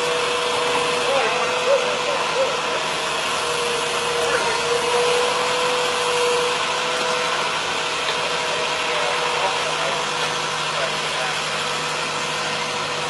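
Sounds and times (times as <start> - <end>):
engine idling with whine: 0.0 - 13.0
faint voices: 1.0 - 3.0.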